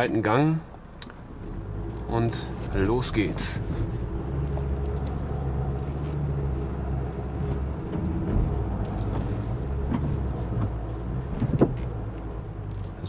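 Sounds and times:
diesel engine pulling under load: 1.2s - 13.0s.

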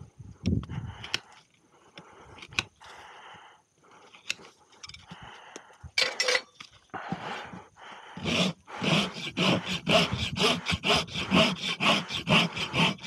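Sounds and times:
rasp filing hoof: 7.1s - 13.0s
hoof knife scraping hoof: 8.2s - 13.0s.

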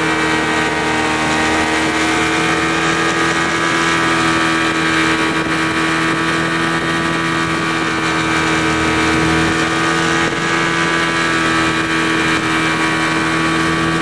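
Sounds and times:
hull hissing on water: 0.0s - 14.0s
outboard motor running: 0.0s - 14.0s.

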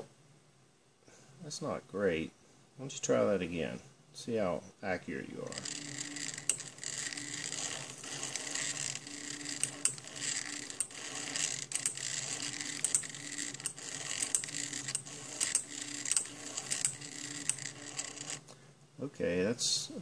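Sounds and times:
stepper motors humming: 5.4s - 18.4s.

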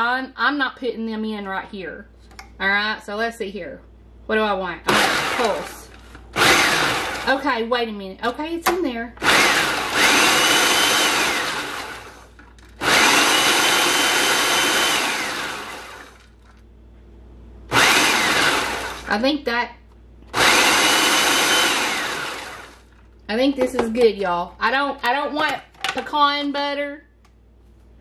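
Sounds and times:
food processor motor whine: 4.9s - 7.4s, 9.2s - 16.6s, 17.7s - 19.1s, 20.3s - 23.0s.

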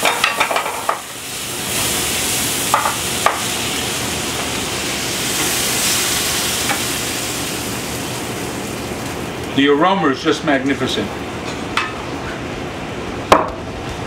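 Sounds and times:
sauce sizzling in a pan: 0.0s - 9.5s.

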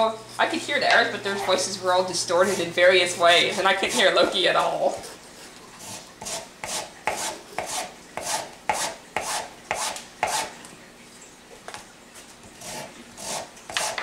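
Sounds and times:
lemon scraping on grater: 1.3s - 10.5s, 12.6s - 14.0s.

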